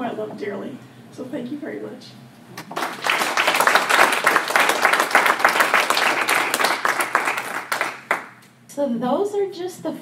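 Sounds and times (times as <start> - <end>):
audience applauding: 2.6 - 8.4.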